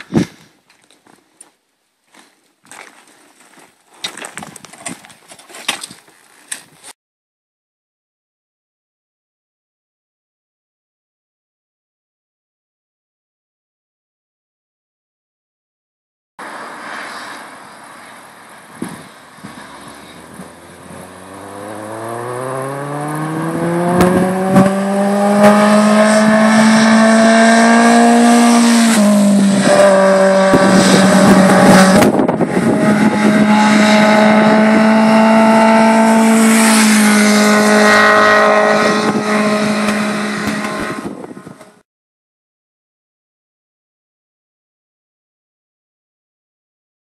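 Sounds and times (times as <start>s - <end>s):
motorcycle engine passing by: 20.5s - 41.2s.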